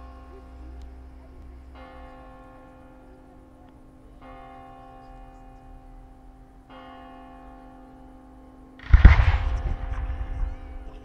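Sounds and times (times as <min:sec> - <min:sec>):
bell tolling: 0:00.0 - 0:07.8, 0:08.8 - 0:11.0
firework bang: 0:08.8 - 0:11.0
rumbling: 0:08.8 - 0:11.0.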